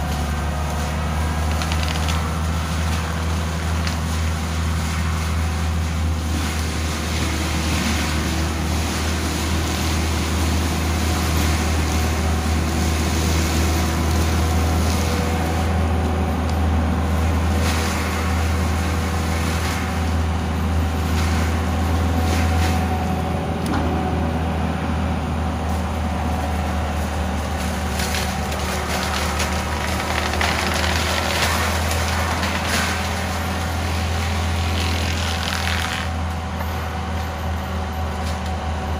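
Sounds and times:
wood cracking: 0:00.0 - 0:04.8, 0:27.4 - 0:36.2
diesel engine under load: 0:00.0 - 0:38.9.

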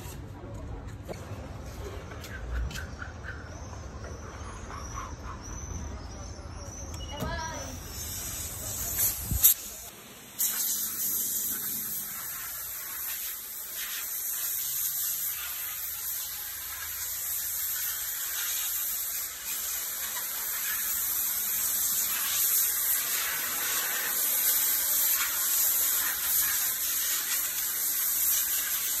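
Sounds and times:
water spray hissing on car: 0:07.3 - 0:29.0.

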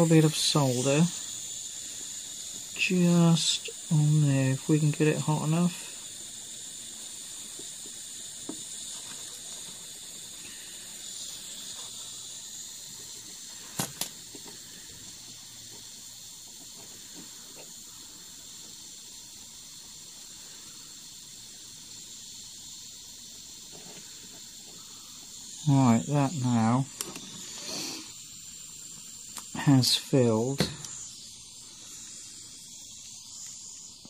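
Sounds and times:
soldering iron hissing: 0:00.0 - 0:34.0.

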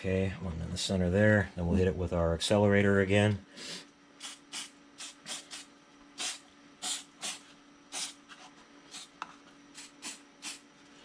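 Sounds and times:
aerosol spray hissing: 0:04.2 - 0:08.2, 0:09.8 - 0:10.6.

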